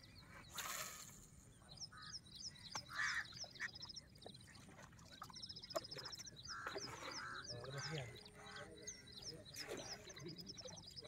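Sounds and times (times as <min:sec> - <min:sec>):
birds chirping: 0:00.0 - 0:11.0
lower bird calls: 0:05.0 - 0:11.0.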